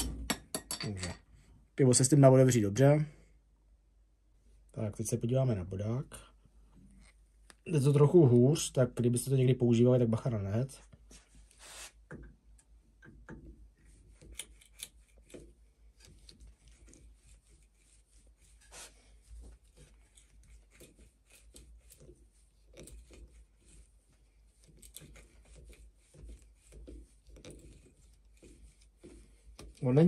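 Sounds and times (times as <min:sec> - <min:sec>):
awl scraping into wood: 0:11.0 - 0:12.1, 0:15.2 - 0:30.0.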